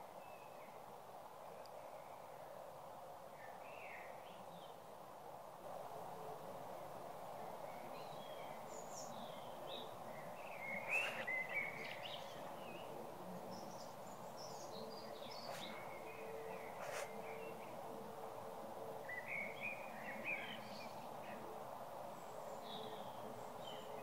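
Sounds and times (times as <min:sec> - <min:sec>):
background hiss: 0:00.0 - 0:24.0
birds chirping and calling: 0:09.0 - 0:12.9, 0:13.5 - 0:17.6.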